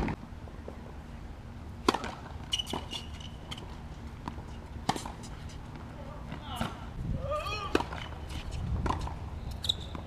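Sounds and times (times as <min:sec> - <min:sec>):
racket striking tennis ball: 0:01.8 - 0:06.8, 0:07.6 - 0:09.2
thin high squeak: 0:02.4 - 0:03.6, 0:09.4 - 0:10.0.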